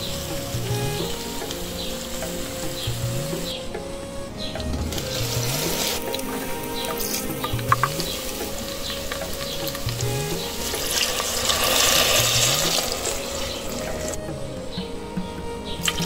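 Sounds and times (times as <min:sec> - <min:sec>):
food sizzling in hot oil: 0:10.8 - 0:13.8.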